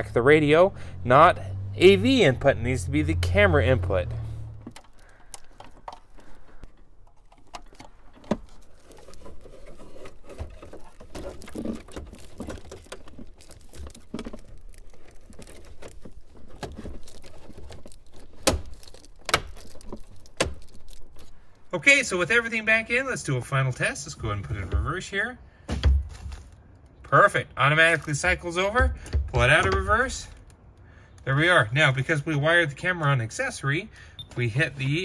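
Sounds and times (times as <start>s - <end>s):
plastic bag rustling: 4.8s - 21.7s, 26.0s - 26.8s.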